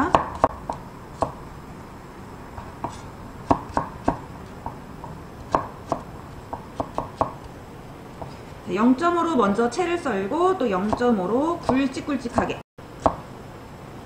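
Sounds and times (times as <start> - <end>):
knife chopping on wooden board: 0.1 - 1.4, 2.6 - 7.4.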